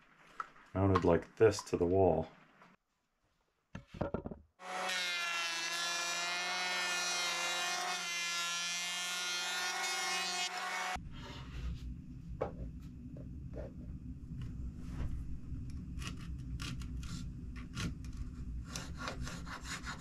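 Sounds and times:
electric planer shaving wood: 4.6 - 11.0.

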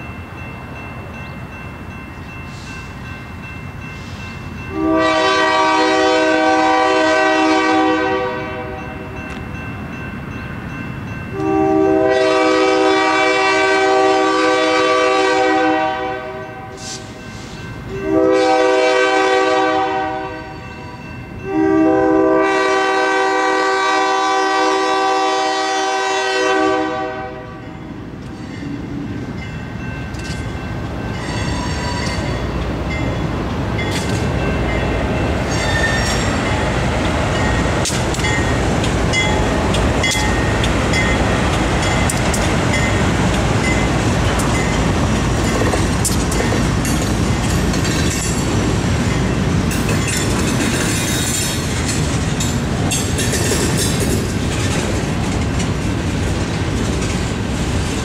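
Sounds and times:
train rumble: 0.0 - 58.0
locomotive air horn: 4.7 - 8.8, 11.4 - 17.2, 18.0 - 20.6, 21.4 - 27.6.

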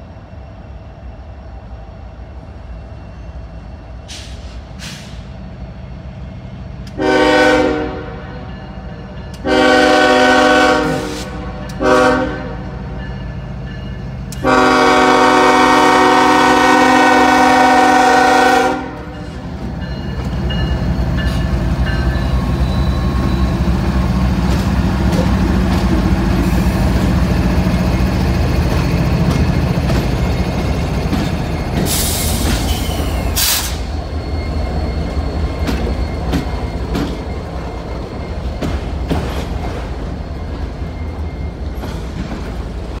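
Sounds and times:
diesel locomotives rumbling: 0.0 - 43.0
short air hisses: 4.1 - 5.3, 31.9 - 33.9.

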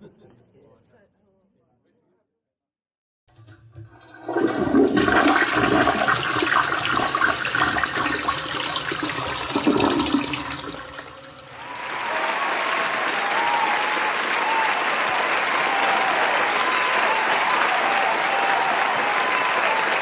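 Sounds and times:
toilet flushing: 3.3 - 11.8
applause: 5.0 - 20.0.

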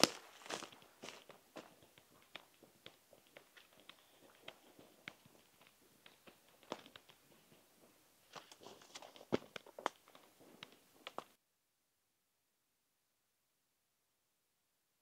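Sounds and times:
footsteps on dry forest floor: 0.0 - 11.4
twigs crackling: 0.0 - 11.4.

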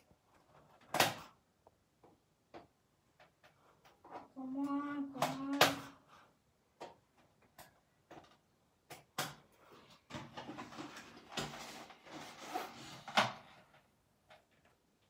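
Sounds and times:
cardboard scraping and rustling: 10.2 - 13.7.

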